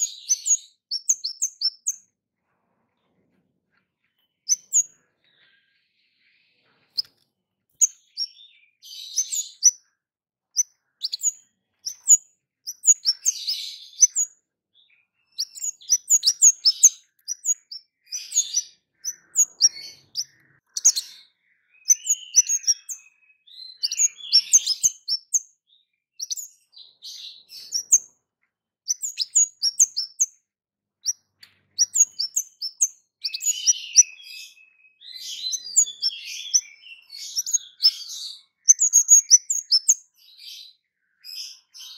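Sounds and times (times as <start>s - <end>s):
songbird chirping and twittering: 0.0s - 41.9s.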